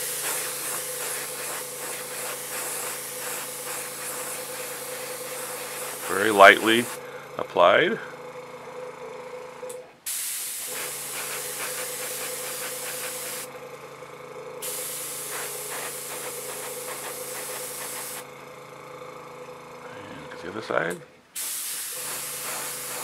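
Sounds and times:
airbrush spraying hiss: 0:00.0 - 0:07.0, 0:10.1 - 0:13.5, 0:14.6 - 0:18.3, 0:21.4 - 0:23.0.

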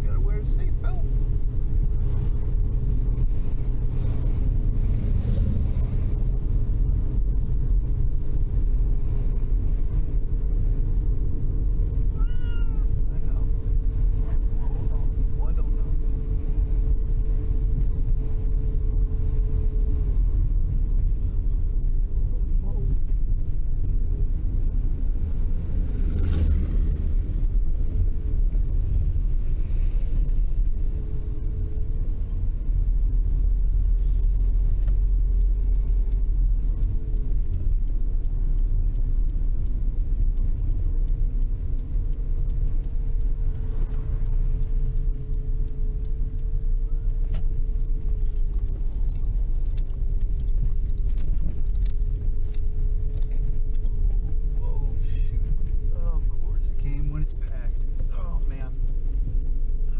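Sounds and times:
car road and engine rumble: 0:00.0 - 0:59.9
light clicks and rattles: 0:12.8 - 0:59.9.

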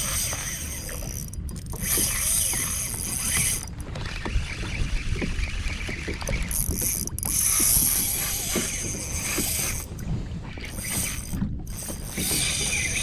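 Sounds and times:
spinning reel whirring: 0:00.0 - 0:10.0, 0:10.6 - 0:13.0
water against kayak: 0:00.0 - 0:13.0
wind: 0:00.0 - 0:13.0.

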